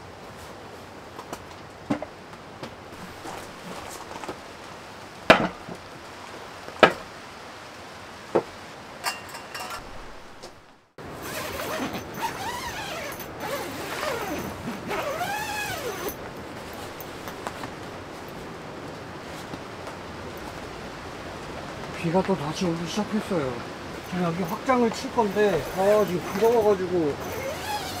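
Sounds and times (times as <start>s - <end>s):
tent zipper: 3.0s - 4.3s, 11.2s - 17.4s, 25.5s - 26.6s, 27.2s - 28.0s
fabric rustling: 3.0s - 4.6s, 9.7s - 18.5s.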